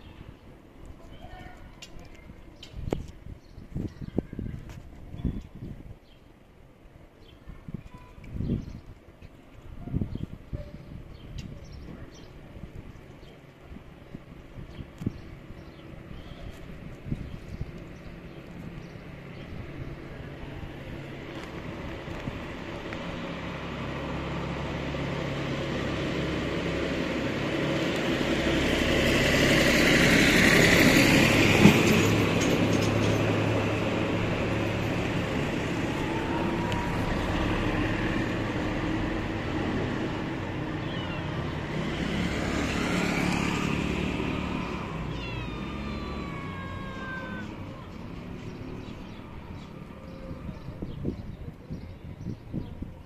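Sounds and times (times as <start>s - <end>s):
traffic passing: 10.8s - 53.0s
cat meowing: 40.7s - 41.6s, 45.0s - 47.9s.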